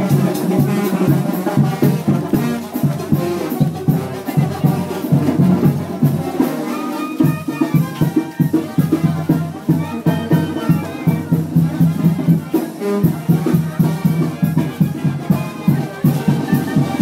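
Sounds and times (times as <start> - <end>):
brass band playing festive music: 0.0 - 17.0
steady drum beat: 0.0 - 17.0.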